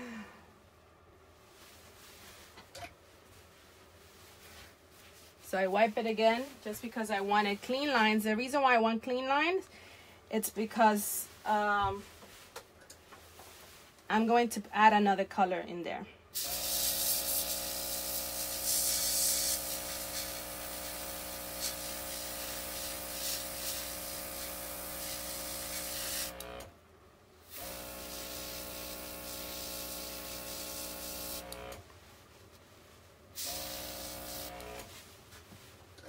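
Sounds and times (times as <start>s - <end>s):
airbrush spraying hiss: 16.4s - 26.4s, 27.6s - 31.6s, 33.4s - 34.8s
small compressor humming: 16.4s - 26.8s, 27.5s - 31.8s, 33.4s - 34.9s.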